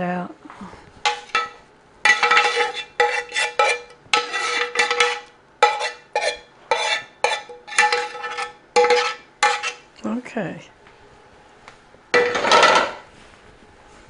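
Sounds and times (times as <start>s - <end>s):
metal spoon scraping pan: 1.0s - 9.9s.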